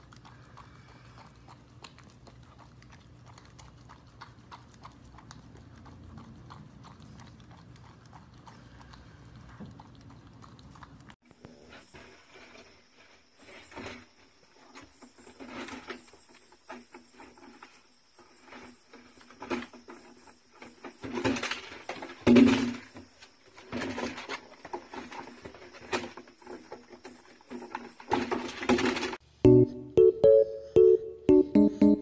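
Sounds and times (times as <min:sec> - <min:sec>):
dogs scuffling with plastic toy: 0:20.9 - 0:29.2.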